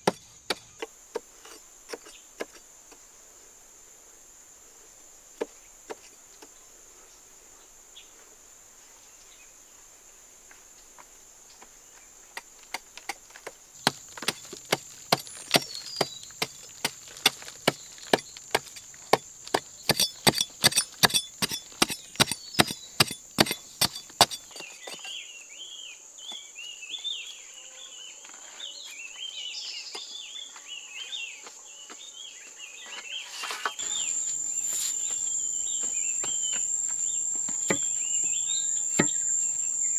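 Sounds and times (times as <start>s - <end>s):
metal tool chipping clay wall: 13.8s - 25.0s, 33.8s - 39.8s
high insect whine: 33.7s - 39.9s
chirping calls: 33.8s - 39.9s.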